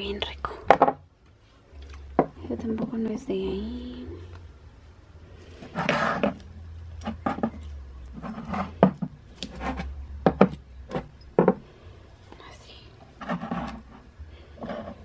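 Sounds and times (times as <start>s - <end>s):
glass rubbing and scraping: 5.6s - 6.4s, 7.0s - 11.6s, 13.2s - 15.0s.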